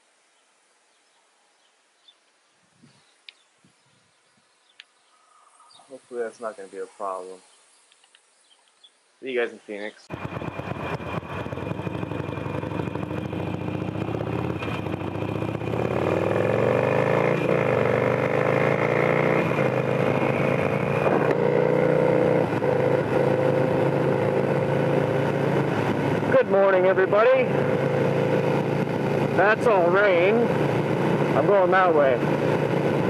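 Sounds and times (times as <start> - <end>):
motorcycle engine accelerating: 10.1 - 33.0.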